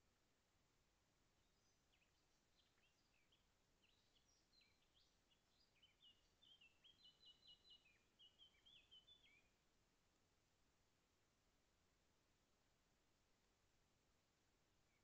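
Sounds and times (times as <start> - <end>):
small bird chirping: 1.4 - 9.6.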